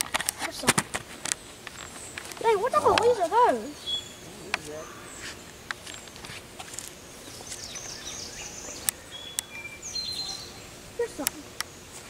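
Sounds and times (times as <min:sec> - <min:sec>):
birds chirping: 0:00.0 - 0:12.0
insects: 0:00.0 - 0:12.0.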